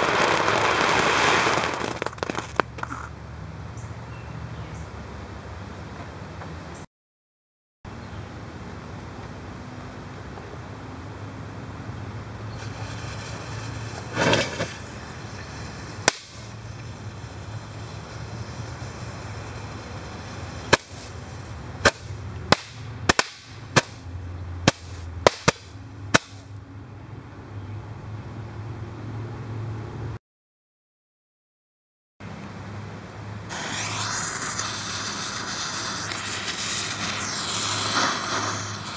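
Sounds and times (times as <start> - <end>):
firework bangs: 0.0 - 2.9, 12.6 - 26.5, 33.5 - 38.9
firework hiss: 0.0 - 3.0, 12.5 - 26.5, 33.5 - 38.9.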